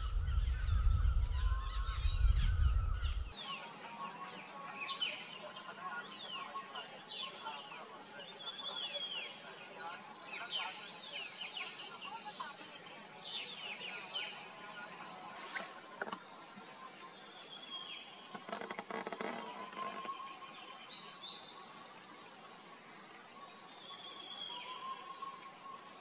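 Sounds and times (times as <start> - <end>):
birds chirping and whistling: 0.0 - 3.6, 16.5 - 22.6, 23.6 - 26.0
crackly noise: 18.2 - 20.3.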